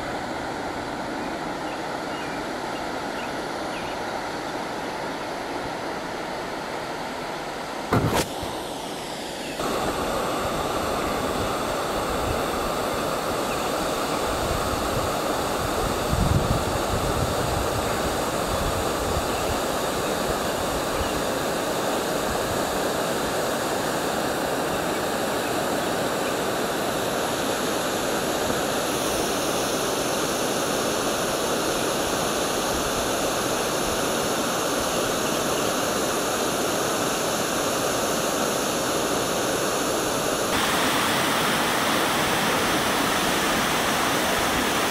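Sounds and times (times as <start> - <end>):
waterfall rushing: 5.8 - 15.6, 17.8 - 44.9.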